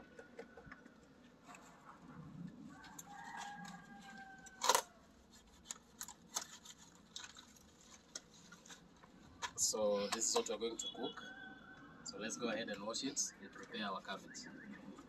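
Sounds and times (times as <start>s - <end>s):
cabbage leaves snapping and crunching: 3.2s - 8.9s.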